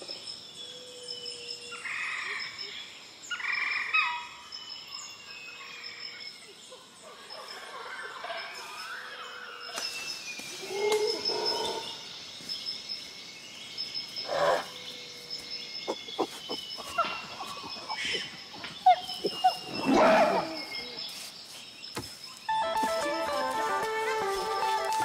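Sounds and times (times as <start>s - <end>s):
animal and bird calls: 6.7s - 22.5s.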